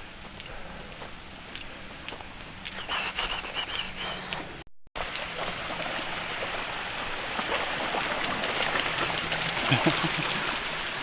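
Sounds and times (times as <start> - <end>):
dogs splashing into water: 5.0 - 11.0
stream running over stones: 5.0 - 11.0.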